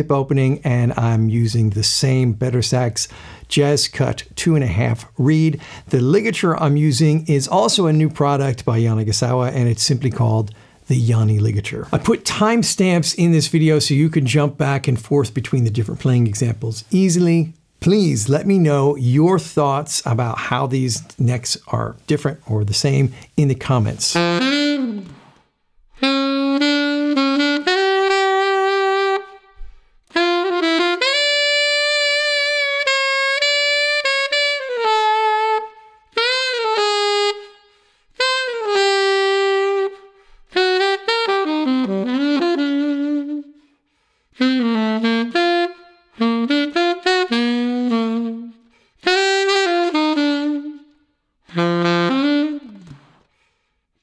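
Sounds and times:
alto saxophone playing: 23.1s - 53.5s.

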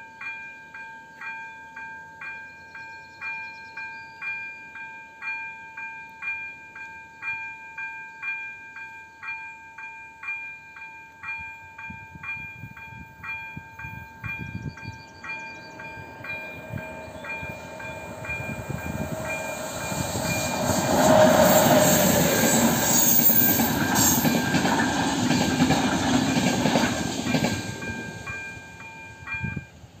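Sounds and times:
level crossing warning bell ringing: 0.0s - 20.9s, 27.3s - 29.8s
train rumble and wheel clatter: 11.3s - 30.0s.

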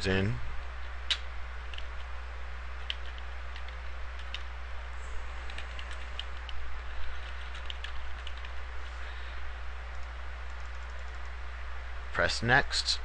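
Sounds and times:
steady low hum: 0.0s - 13.0s
keyboard keystrokes: 2.8s - 4.5s, 7.3s - 8.5s.

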